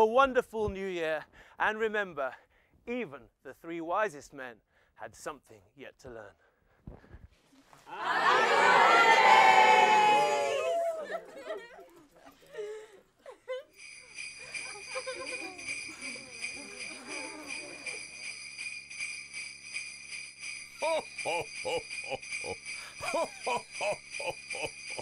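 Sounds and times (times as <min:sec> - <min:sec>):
sleigh bells shaking: 0:13.7 - 0:25.0.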